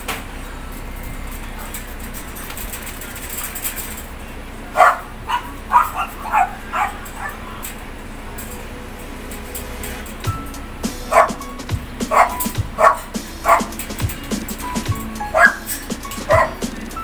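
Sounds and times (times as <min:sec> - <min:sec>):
background hiss: 0:00.0 - 0:17.0
dog barking: 0:04.7 - 0:07.6, 0:11.1 - 0:11.5, 0:12.1 - 0:13.9, 0:15.2 - 0:16.8.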